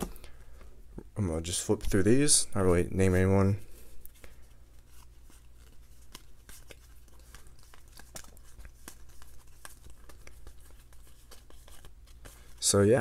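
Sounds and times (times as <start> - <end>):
trading cards flicking: 5.6 - 12.3.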